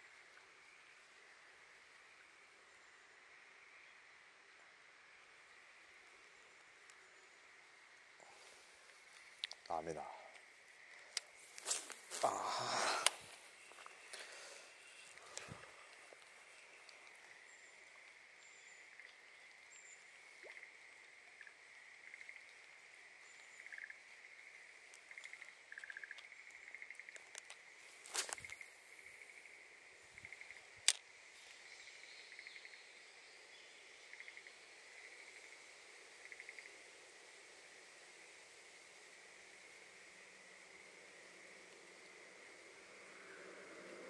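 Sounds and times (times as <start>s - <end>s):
faint frog chorus: 0.0s - 44.0s
rustle: 0.0s - 44.0s
frogs pulsed calls: 6.9s - 31.0s, 33.8s - 38.3s.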